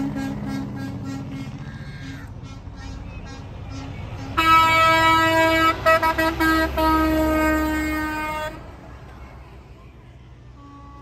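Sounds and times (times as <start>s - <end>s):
truck air horn blasting: 0.0s - 1.6s, 3.8s - 8.8s, 10.5s - 11.0s
diesel engine rumbling: 0.0s - 11.0s.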